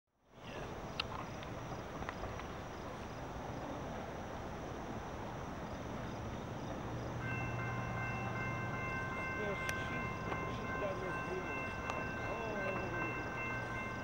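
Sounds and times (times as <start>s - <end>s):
outdoor background noise: 0.1s - 14.0s
insects chirping: 0.4s - 14.0s
train horn chord: 7.2s - 14.0s.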